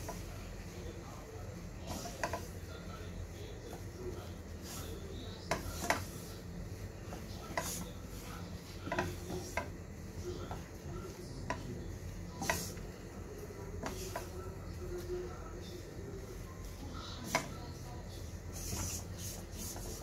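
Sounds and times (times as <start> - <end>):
wooden spatula scraping a pan: 1.8 - 2.9, 3.7 - 9.8, 13.7 - 14.4.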